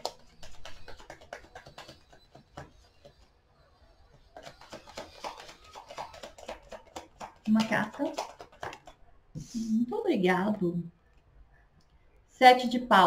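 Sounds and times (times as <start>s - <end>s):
cards being shuffled: 4.1s - 9.0s.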